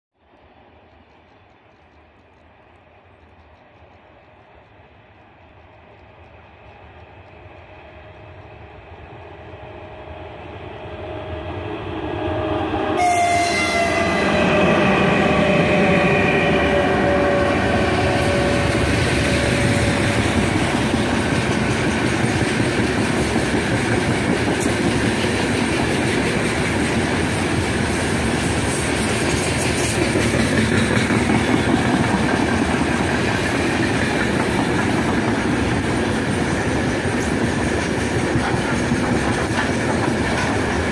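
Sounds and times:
electric locomotive passing: 0:00.2 - 0:40.9
train horn: 0:12.2 - 0:20.7.

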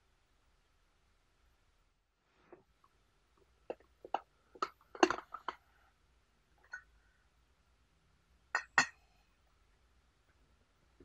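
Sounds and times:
glassware clinking on metal and porcelain: 0:05.0 - 0:05.6, 0:08.6 - 0:09.0.

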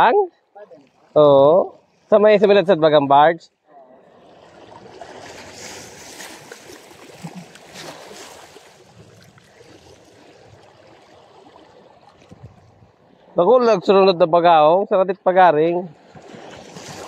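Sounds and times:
waves lapping over rocks: 0:04.0 - 0:13.4, 0:15.9 - 0:17.0.

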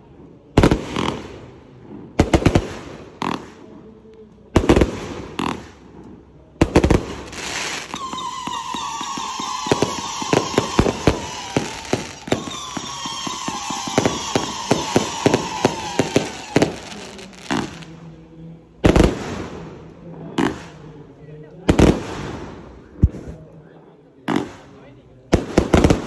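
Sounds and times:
crackling firework pops: 0:02.1 - 0:03.7, 0:04.5 - 0:17.9
falling firework whistle: 0:07.7 - 0:17.1.

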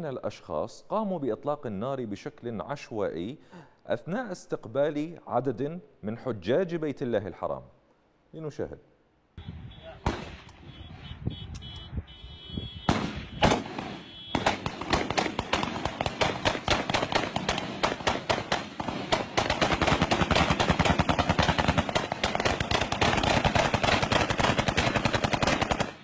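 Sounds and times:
rifle gunfire: 0:10.0 - 0:10.5, 0:12.8 - 0:26.0.

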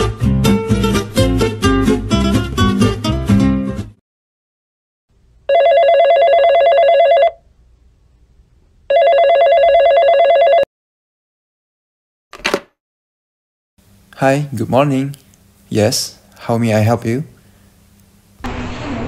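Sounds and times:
telephone ringing: 0:05.5 - 0:07.4, 0:08.9 - 0:10.7.

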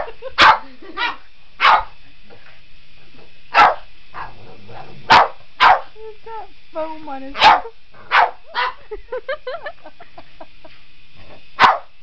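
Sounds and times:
dog barking: 0:00.0 - 0:02.0, 0:03.5 - 0:04.3, 0:05.1 - 0:05.9, 0:07.4 - 0:08.8, 0:11.6 - 0:11.9.

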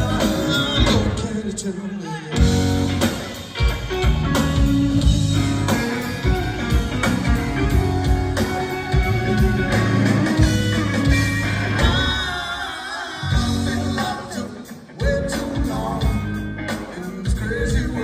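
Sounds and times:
steady drum beat: 0:00.0 - 0:01.3, 0:02.4 - 0:12.4
bass guitar: 0:00.0 - 0:18.0
electric guitar: 0:00.0 - 0:18.0.

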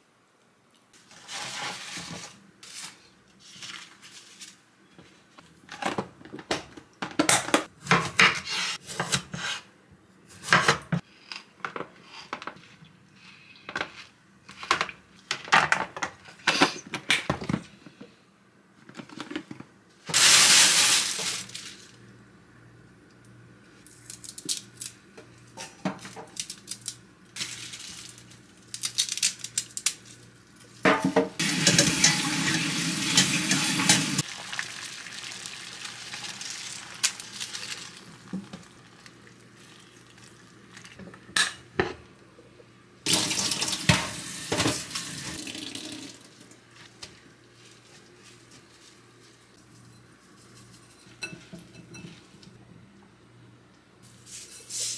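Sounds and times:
kitchen tap running: 0:31.4 - 0:38.7, 0:43.1 - 0:46.4
dishes and utensils clinking: 0:50.8 - 0:52.3.

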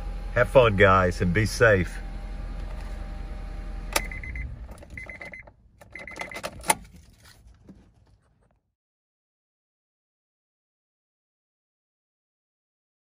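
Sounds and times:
car engine idling: 0:00.0 - 0:07.9
dashboard warning chime beeping: 0:03.9 - 0:06.8
ignition switch click: 0:03.9 - 0:06.8.

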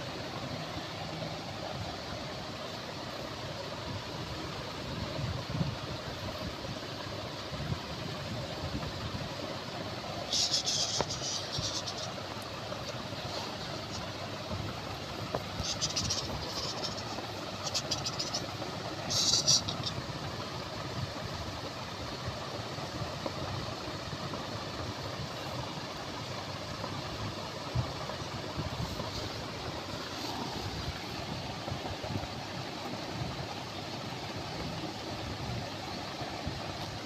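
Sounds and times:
steady background hum: 0:00.0 - 0:37.0.

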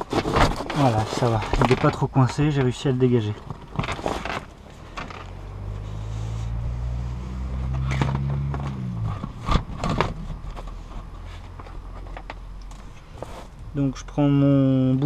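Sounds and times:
sharp knocks and scrapes: 0:00.0 - 0:13.7
vehicle driving past: 0:04.6 - 0:09.4.

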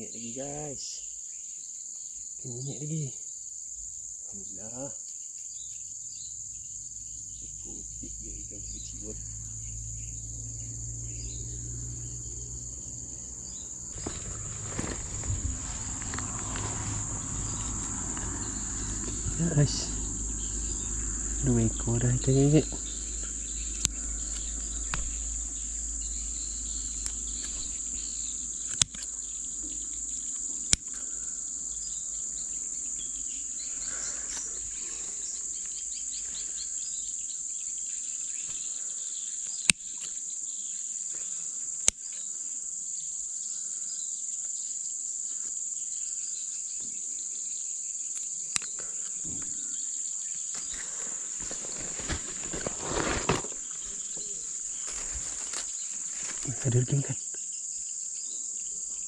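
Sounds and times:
insects droning: 0:00.0 - 0:59.0
brief rustle: 0:13.9 - 0:17.7, 0:50.6 - 0:56.6
sharp clicks: 0:28.6 - 0:29.2.

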